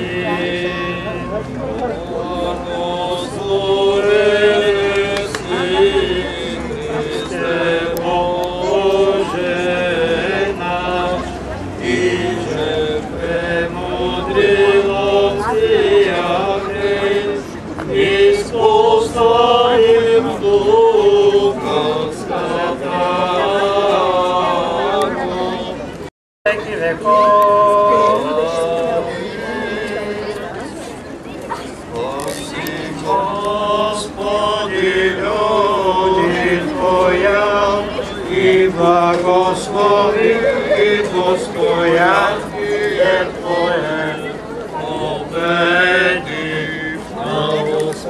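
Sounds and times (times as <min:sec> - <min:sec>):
priest chanting: 0:00.0 - 0:25.8, 0:26.5 - 0:30.6, 0:31.9 - 0:48.0
man chanting prayers: 0:26.5 - 0:30.3.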